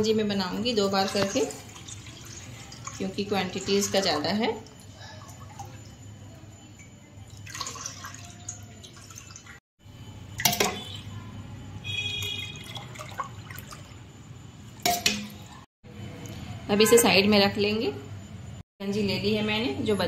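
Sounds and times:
liquid trickling and splashing: 0.8 - 6.2, 6.8 - 9.6, 12.1 - 14.0.

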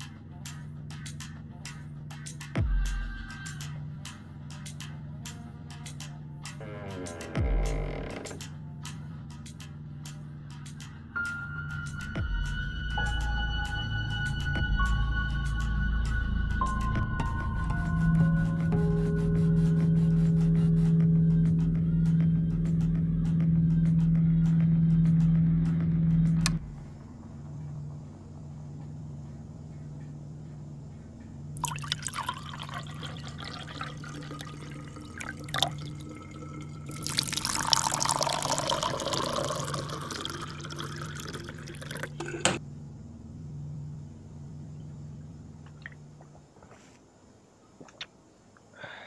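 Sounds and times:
music: 0.0 - 42.0
low pulsing hum: 12.2 - 31.6, 42.2 - 46.8
liquid pouring into a cup: 31.6 - 42.4.

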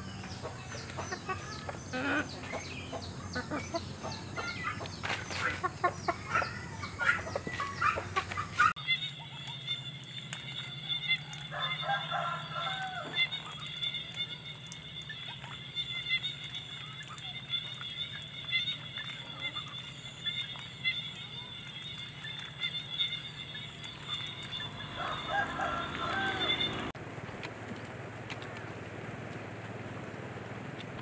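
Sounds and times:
chickens clucking: 0.0 - 9.6, 15.3 - 27.0
drawn-out bird call: 0.0 - 27.0.

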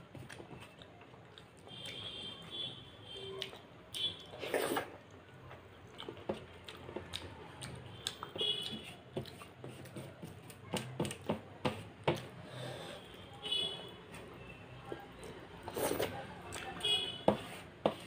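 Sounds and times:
wet chewing: 0.1 - 2.1, 3.3 - 9.9, 14.9 - 16.8.

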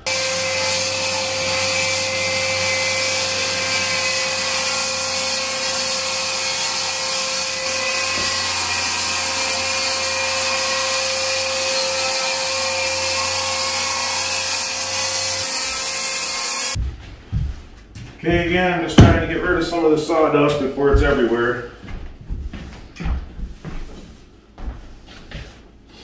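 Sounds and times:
vacuum cleaner running: 0.0 - 14.2.

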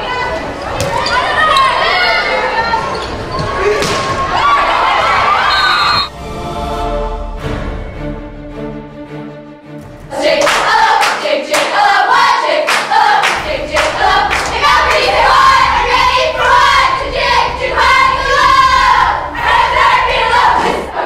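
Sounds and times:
girls chanting a cheer: 10.1 - 21.0
hands clapping in rhythm: 10.3 - 15.1.

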